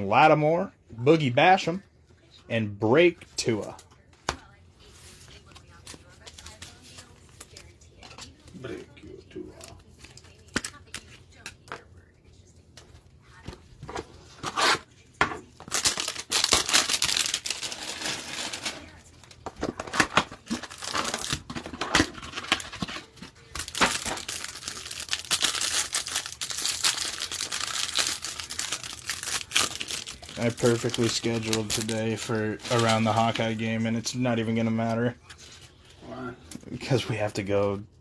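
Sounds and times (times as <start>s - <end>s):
cellophane wrap crinkling: 15.6s - 35.6s.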